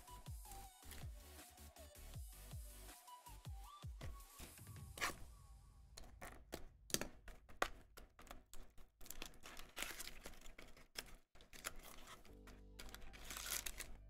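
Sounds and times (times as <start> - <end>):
cards clicking and tapping: 6.0 - 14.0
cards rustling: 6.0 - 14.0.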